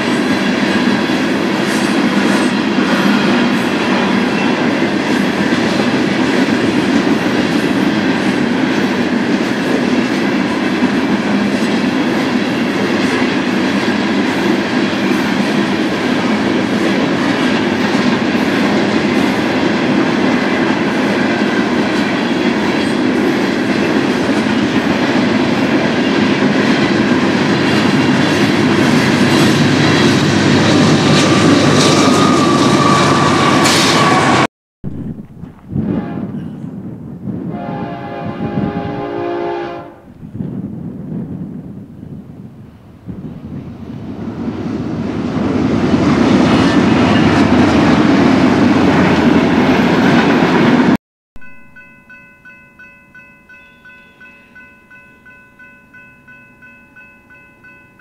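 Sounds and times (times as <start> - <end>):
freight train rumbling past: 0.0 - 58.0.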